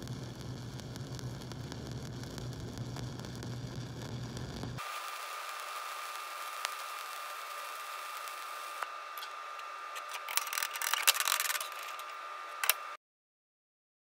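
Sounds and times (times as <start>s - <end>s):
welding arc hissing: 0.0s - 13.0s.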